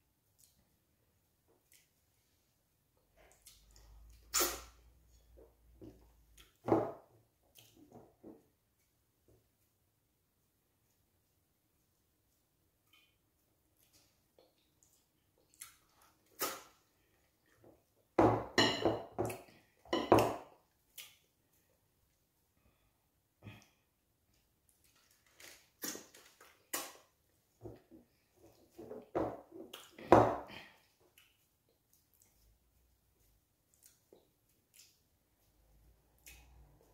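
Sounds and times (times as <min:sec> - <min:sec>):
wet eating smacks: 0:33.6 - 0:35.1.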